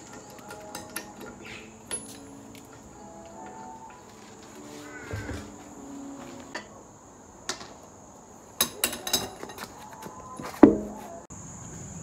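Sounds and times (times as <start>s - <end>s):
metal tools clinking and rattling: 0.0s - 4.6s, 8.6s - 9.9s.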